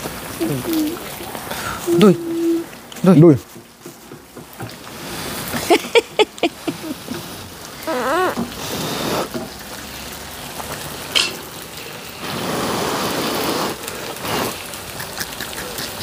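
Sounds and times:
wavering voice-like sound: 0:00.4 - 0:02.8.

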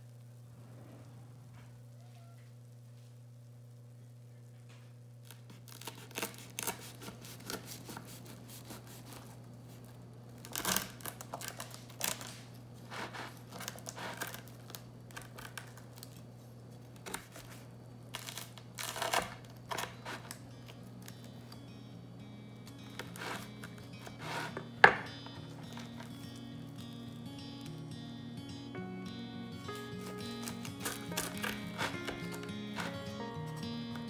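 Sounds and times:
knife sawing through bread crust: 0:05.8 - 0:09.4, 0:12.8 - 0:14.5, 0:22.9 - 0:24.8, 0:30.0 - 0:33.2.

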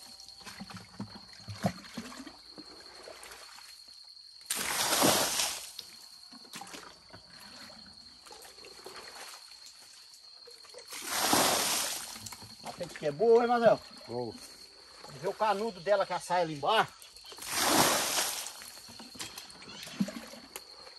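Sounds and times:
water splashing onto ground: 0:04.5 - 0:05.9, 0:10.7 - 0:12.9, 0:17.3 - 0:19.4
water sloshing: 0:17.3 - 0:20.9.

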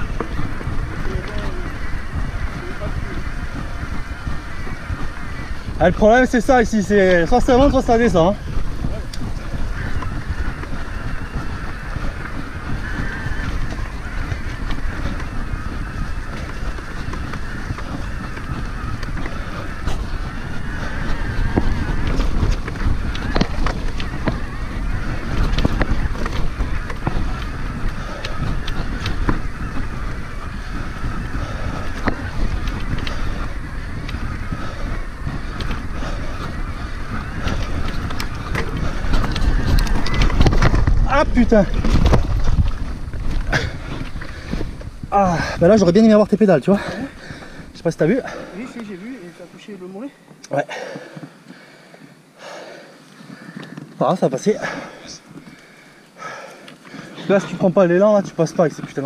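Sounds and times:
bike tyre and frame rattle: 0:00.0 - 0:59.0
wind buffeting microphone: 0:00.0 - 0:59.0.

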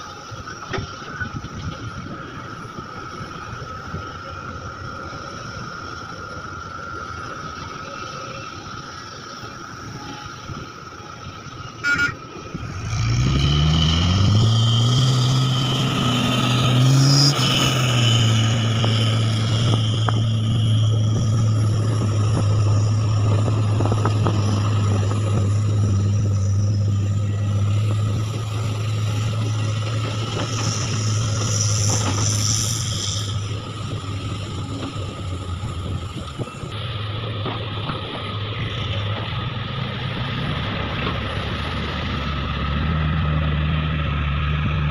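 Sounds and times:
short horn beep: 0:11.8 - 0:12.2
heavy diesel engine revving: 0:11.8 - 0:44.9.

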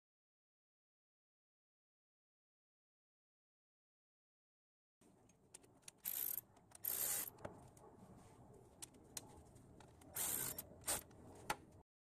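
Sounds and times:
ratchet wrench clicking: 0:05.9 - 0:07.3, 0:10.2 - 0:11.0
sharp ratchet clicks: 0:05.9 - 0:07.3, 0:10.2 - 0:11.0.

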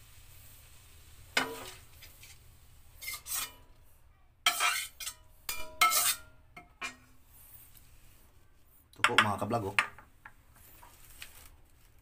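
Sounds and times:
utensil scraping a metal wok: 0:00.3 - 0:03.8, 0:04.4 - 0:09.6.

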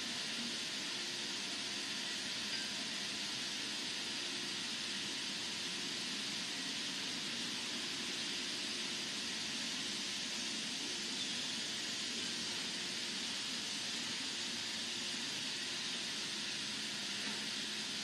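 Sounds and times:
steady hiss: 0:00.0 - 0:18.0.

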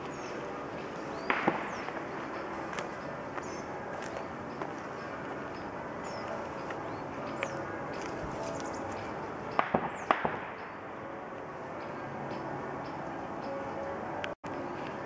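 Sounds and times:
rustle of footsteps: 0:00.0 - 0:09.3
dry sticks snapping underfoot: 0:00.0 - 0:10.6
small birds chirping: 0:00.0 - 0:10.8.

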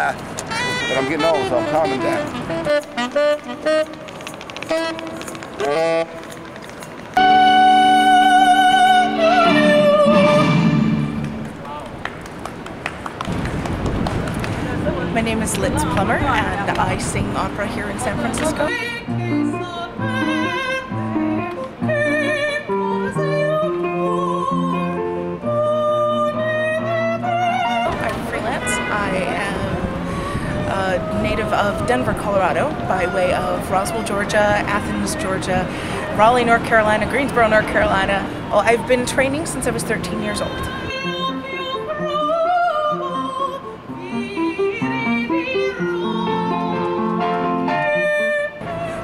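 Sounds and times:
instrumental accompaniment: 0:00.0 - 0:12.1, 0:14.8 - 0:48.8
woman singing opera: 0:07.2 - 0:11.1, 0:15.4 - 0:49.0.

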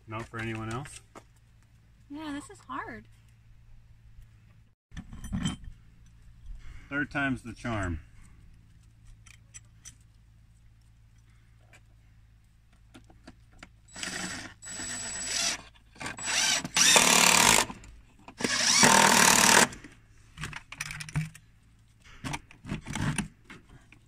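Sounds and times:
impact driver driving screw: 0:13.9 - 0:17.8, 0:18.4 - 0:19.8.

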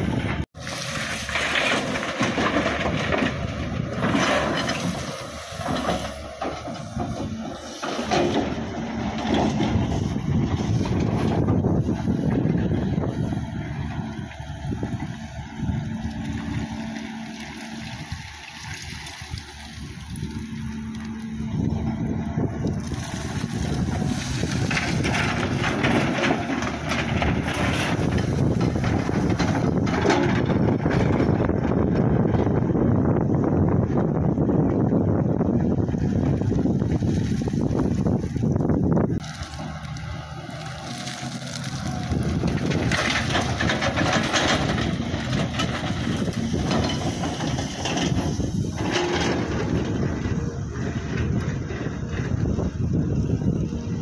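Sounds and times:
excavator engine running: 0:00.0 - 0:54.0
earth and stones rattling into truck: 0:00.3 - 0:13.2, 0:22.4 - 0:32.6, 0:35.6 - 0:52.9.

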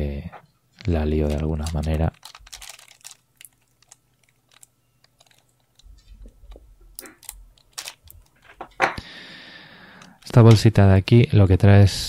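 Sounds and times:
plastic bags crinkling and rustling: 0:00.8 - 0:08.7.

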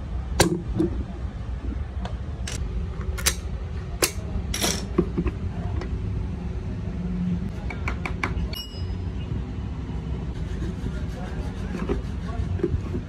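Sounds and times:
steady low rumble: 0:00.0 - 0:07.6
battery plates clicking and knocking: 0:07.6 - 0:08.5.

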